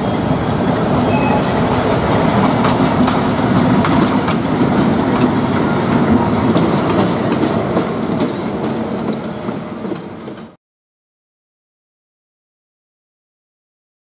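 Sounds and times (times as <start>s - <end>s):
train passing: 0.0s - 10.6s
wheels clattering over rails: 0.0s - 10.6s.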